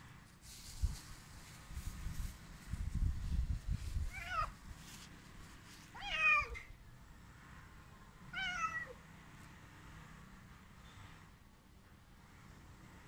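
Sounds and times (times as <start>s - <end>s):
cat meowing: 4.1s - 4.6s, 5.9s - 6.7s, 8.3s - 9.0s.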